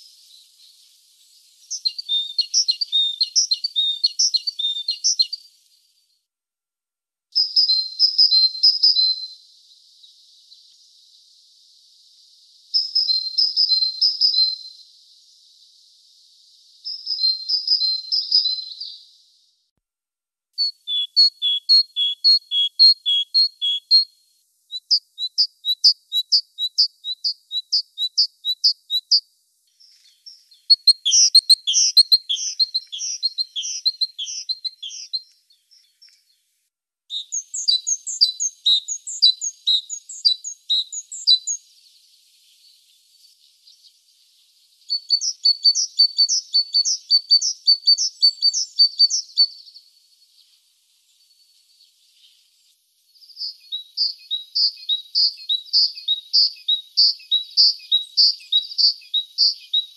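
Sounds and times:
great tit singing: 0.0s - 5.5s, 7.4s - 11.3s, 11.9s - 19.2s, 20.6s - 36.3s, 37.1s - 43.9s, 44.6s - 50.3s, 53.2s - 59.9s.

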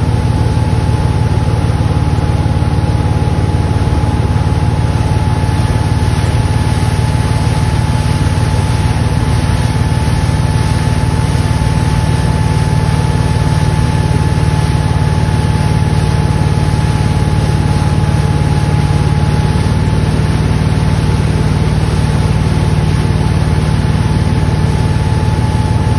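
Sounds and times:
motorboat engine running: 0.0s - 25.9s
thin steady whine: 0.0s - 25.9s
water rushing: 0.0s - 25.9s.

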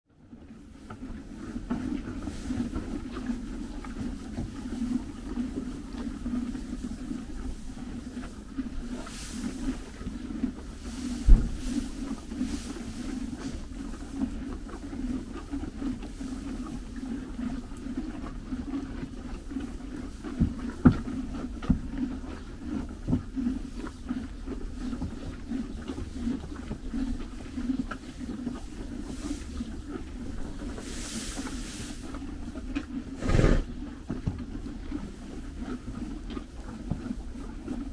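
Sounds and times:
horses chewing hay: 0.2s - 37.9s
hay rustling: 10.9s - 13.6s, 30.7s - 32.0s.

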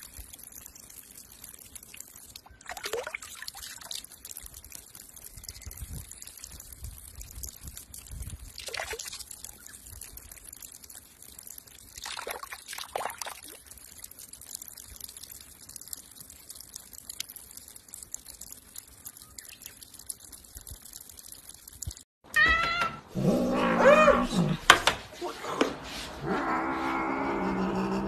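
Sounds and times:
water pouring onto rock: 0.0s - 22.1s.

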